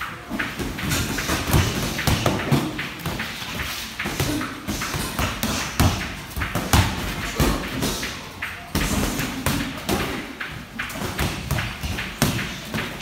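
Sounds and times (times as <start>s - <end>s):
boxing gloves thudding: 0.4s - 8.0s.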